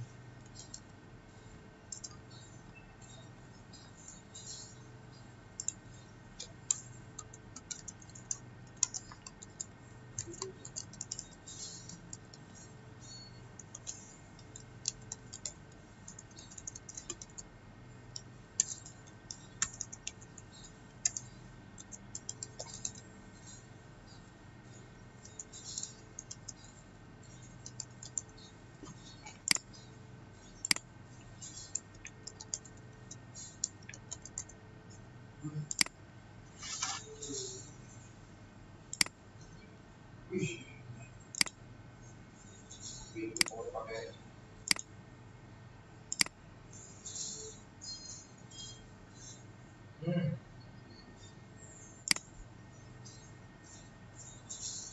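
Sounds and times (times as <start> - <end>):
faint steady hum: 0.0 - 54.9
typing on computer keyboard: 0.4 - 0.9, 1.9 - 2.4, 5.6 - 17.5, 18.1 - 34.6, 35.7 - 36.0, 41.3 - 41.6, 44.7 - 44.9, 46.1 - 46.3, 47.0 - 49.4
sharp clicks: 18.1 - 23.6, 27.6 - 29.8, 35.7 - 36.0, 38.9 - 39.2, 41.3 - 41.6, 44.7 - 44.9, 46.1 - 46.4, 52.1 - 52.3.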